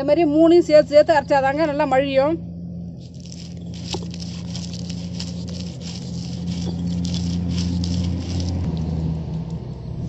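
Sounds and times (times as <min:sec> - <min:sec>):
steady low hum: 0:00.0 - 0:10.0
stone scraping on stone: 0:03.0 - 0:08.7
small crunches of grinding: 0:03.0 - 0:09.0.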